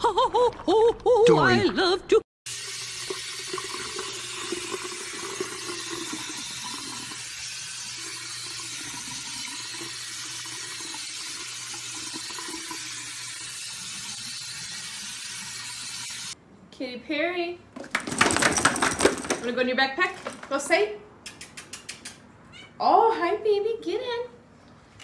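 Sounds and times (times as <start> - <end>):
sink sprayer hissing water: 2.5 - 16.4.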